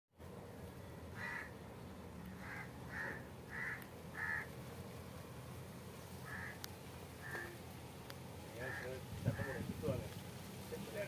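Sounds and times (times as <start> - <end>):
short animal calls: 2.3 - 4.5, 6.2 - 6.6, 7.2 - 7.7.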